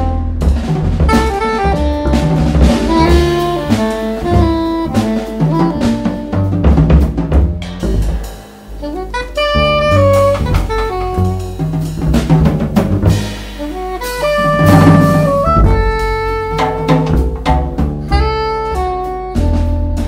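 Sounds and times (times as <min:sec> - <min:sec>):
drum kit with cymbals: 0:00.0 - 0:20.0
walking double bass: 0:00.0 - 0:20.0
soprano saxophone melody: 0:01.1 - 0:06.8, 0:08.8 - 0:11.7, 0:13.6 - 0:20.0.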